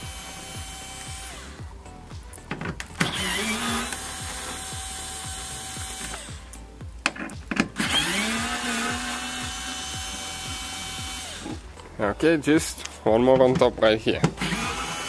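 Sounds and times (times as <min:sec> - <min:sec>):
electric screwdriver whine: 0:00.0 - 0:01.6, 0:02.9 - 0:06.5, 0:07.7 - 0:11.6, 0:14.4 - 0:15.0
background music with steady beat: 0:00.0 - 0:15.0.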